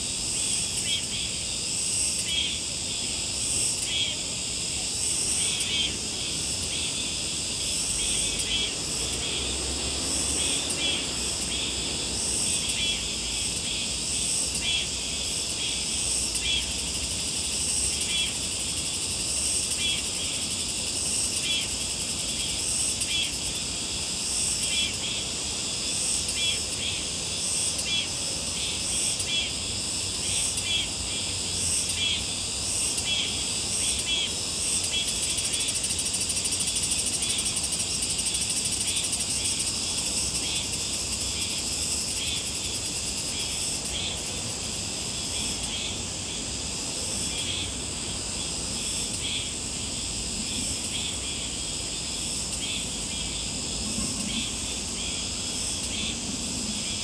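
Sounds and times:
insects chirring: 0.0s - 57.0s.

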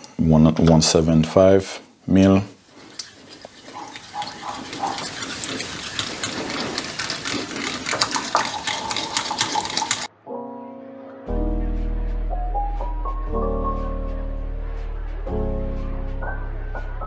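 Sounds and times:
whisk sloshing liquid: 2.6s - 10.1s
whisk clicking against glass bowl: 3.8s - 10.1s
music: 10.1s - 17.0s.

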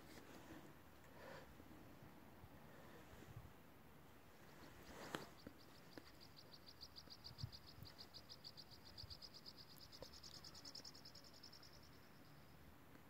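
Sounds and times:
insect chirping trill: 5.2s - 12.7s.

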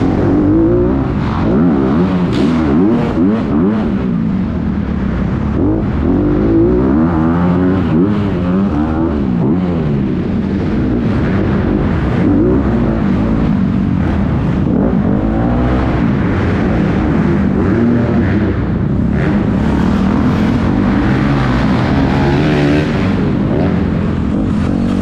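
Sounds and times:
dirt bike engine revving: 0.0s - 4.2s, 4.8s - 25.0s.

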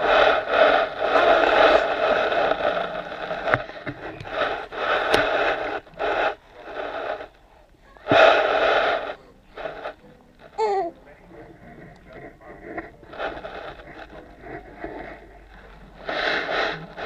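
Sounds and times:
hand rubbing on camera housing: 0.0s - 7.4s, 11.6s - 17.0s.

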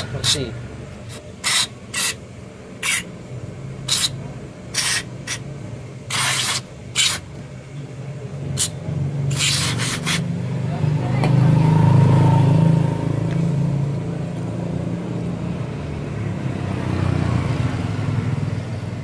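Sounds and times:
aerosol spray hissing bursts: 1.4s - 2.2s, 3.9s - 5.4s, 6.1s - 7.2s, 9.3s - 10.3s.

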